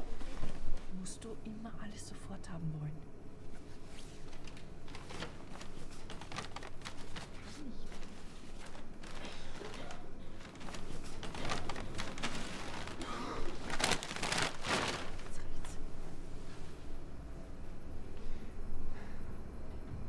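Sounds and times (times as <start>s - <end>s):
clothing rustling and handling: 0.0s - 1.2s, 3.4s - 16.9s.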